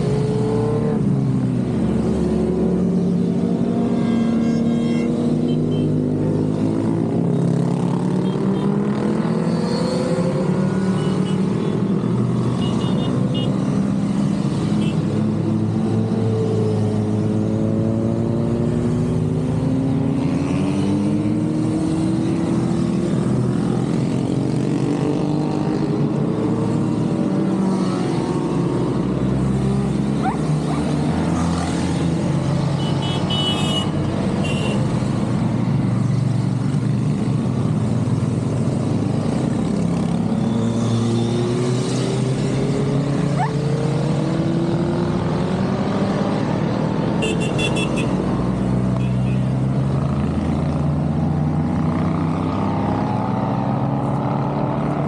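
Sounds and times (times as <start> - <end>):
motorcycles riding past: 0.0 - 55.0.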